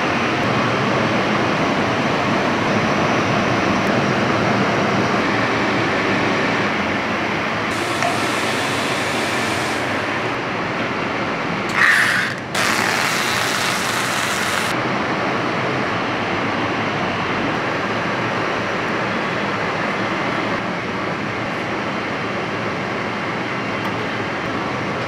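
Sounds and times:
factory machinery running: 0.0 - 14.8.

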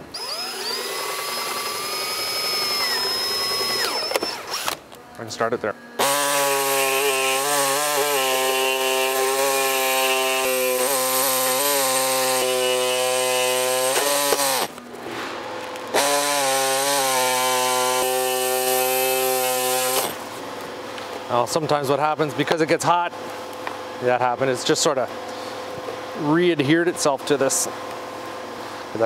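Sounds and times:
air saw cutting plastic: 0.0 - 4.8, 6.0 - 14.8, 15.9 - 20.2.

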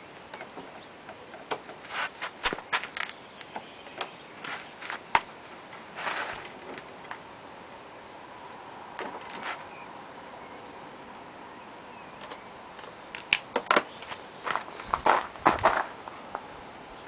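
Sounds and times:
transmitter clicking on concrete: 12.2 - 15.0.

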